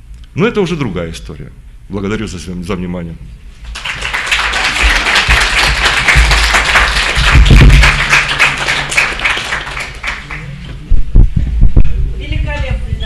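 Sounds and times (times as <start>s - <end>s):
audience applauding: 3.7s - 10.6s.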